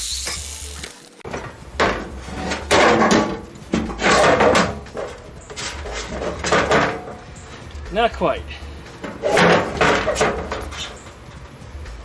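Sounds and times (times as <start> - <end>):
plastic hood knocking and scraping: 1.3 - 7.2, 9.0 - 11.0.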